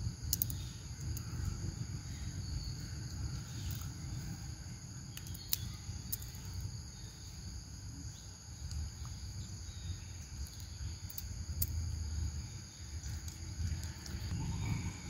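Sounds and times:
high-pitched insect chorus: 0:00.0 - 0:15.0
sharp clicks: 0:00.3 - 0:00.6
low rumble: 0:11.7 - 0:15.0.

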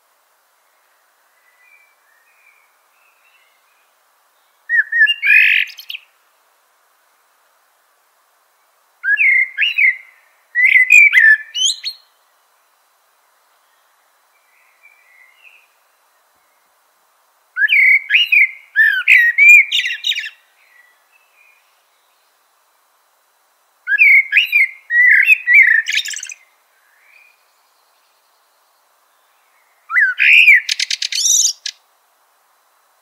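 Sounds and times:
mockingbird singing: 0:04.7 - 0:06.0, 0:17.6 - 0:20.4, 0:23.9 - 0:26.4, 0:29.9 - 0:31.8.

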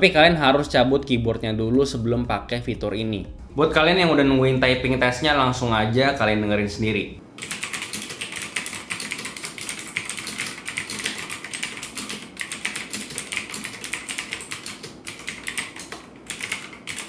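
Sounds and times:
fast mechanical keyboard typing: 0:07.4 - 0:17.0.

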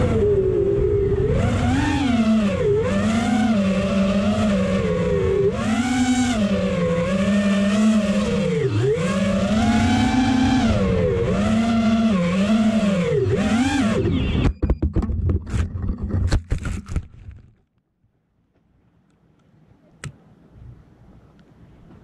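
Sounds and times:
drone propellers whining: 0:00.0 - 0:16.1
wind on microphone: 0:00.0 - 0:17.0.

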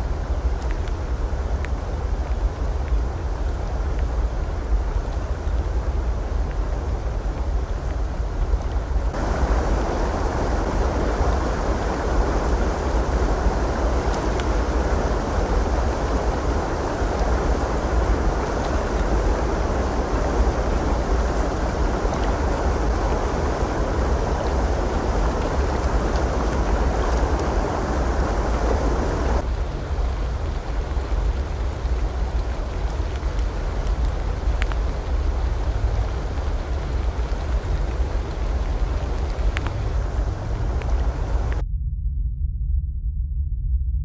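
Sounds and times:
waterfall rushing: 0:09.1 - 0:29.5, 0:32.3 - 0:41.6
deep low rumble: 0:35.1 - 0:44.0.

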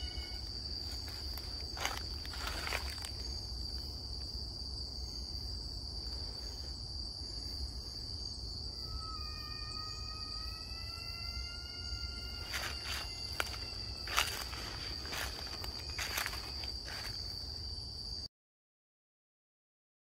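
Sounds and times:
whistle-like animal call: 0:00.0 - 0:00.5, 0:08.8 - 0:14.2
footsteps in dry leaf litter: 0:00.0 - 0:03.4, 0:12.4 - 0:17.4
insect drone: 0:00.0 - 0:18.3.

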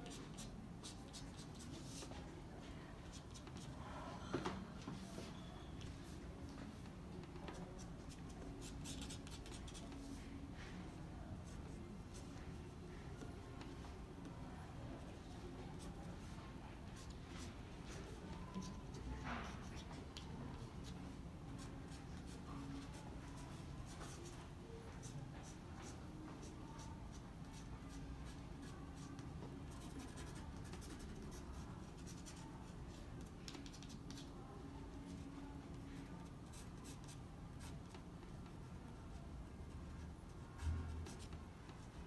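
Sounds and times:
marker pen scratching on paper: 0:00.0 - 0:02.3, 0:07.3 - 0:10.2, 0:25.0 - 0:34.3, 0:36.5 - 0:38.6, 0:39.9 - 0:42.0.

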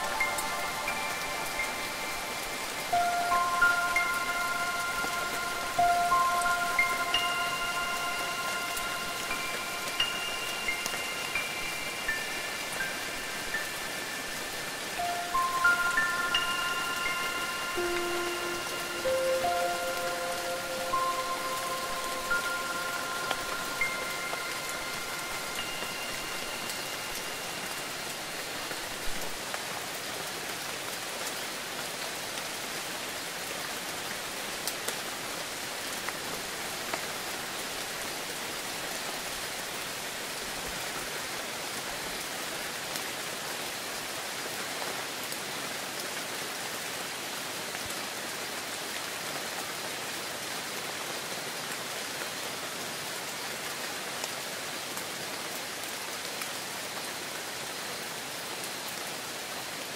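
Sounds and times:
wind chime ringing: 0:00.0 - 0:29.3
heavy rain: 0:00.0 - 0:59.9.

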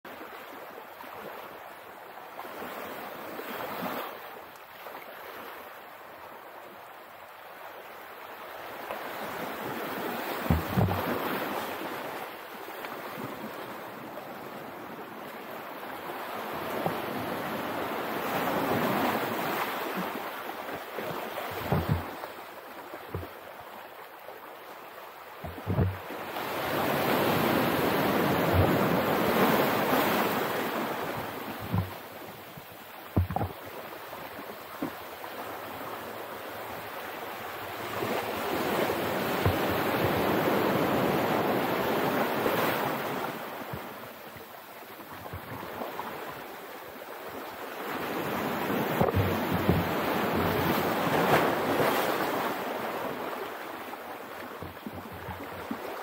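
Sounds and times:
ocean waves breaking: 0:07.5 - 0:56.0
wind buffeting microphone: 0:31.0 - 0:32.0.

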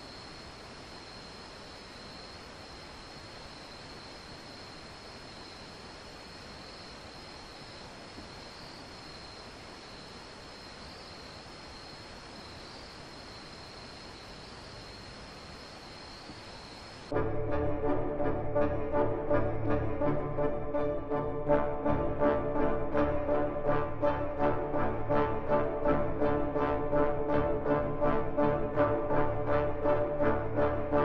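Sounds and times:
insects trilling: 0:00.0 - 0:17.1
steady hiss: 0:00.0 - 0:17.1
loud brass music: 0:17.2 - 0:31.0.

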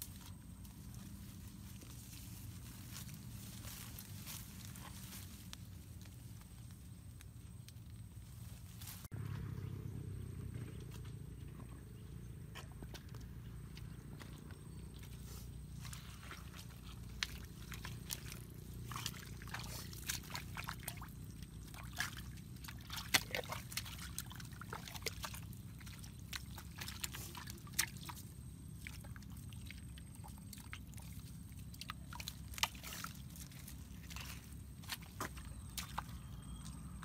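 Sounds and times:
low steady rumble: 0:00.0 - 0:37.0
feet squelching in mud: 0:12.9 - 0:37.0
small wet clicks and splashes: 0:13.7 - 0:36.8.

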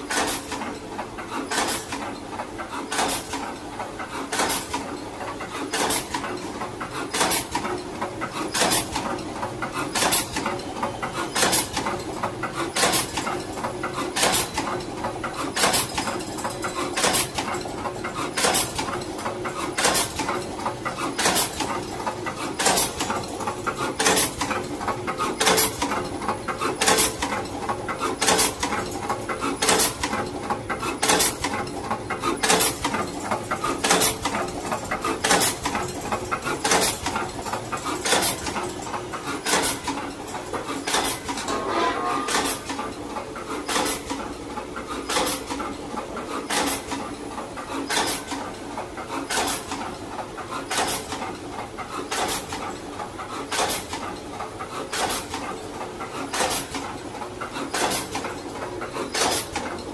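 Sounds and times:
machine sharp strokes: 0:40.9 - 0:42.7.

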